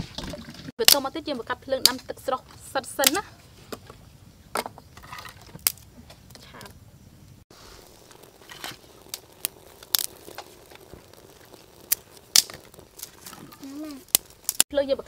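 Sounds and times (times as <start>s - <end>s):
twigs crackling in fire: 0.8s - 15.0s.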